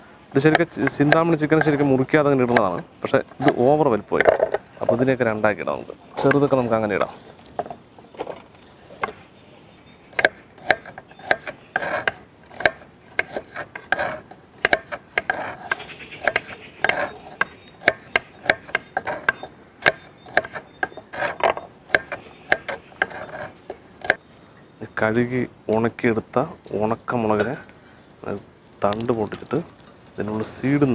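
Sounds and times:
knife scraping board: 0:10.6 - 0:24.2.

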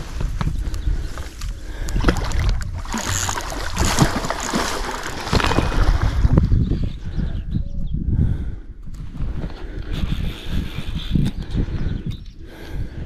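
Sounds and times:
wind buffeting microphone: 0:00.0 - 0:13.0
fish splashing in water: 0:02.0 - 0:06.3.

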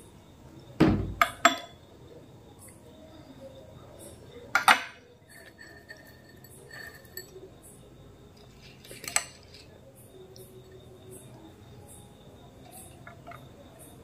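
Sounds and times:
spoon clinking on glass bowl: 0:04.6 - 0:07.4.

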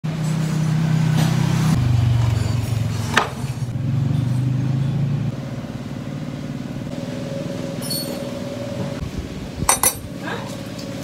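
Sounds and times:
metal vise clinking: 0:09.7 - 0:10.1.

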